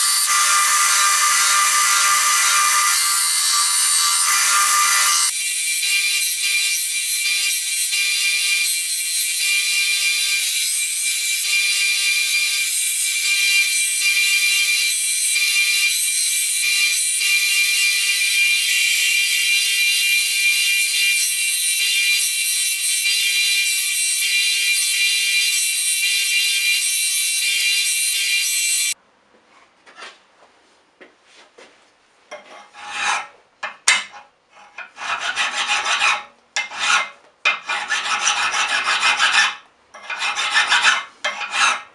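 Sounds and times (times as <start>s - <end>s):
belt grinder grinding steel: 0.0s - 29.0s
file rasping on steel: 32.4s - 41.9s.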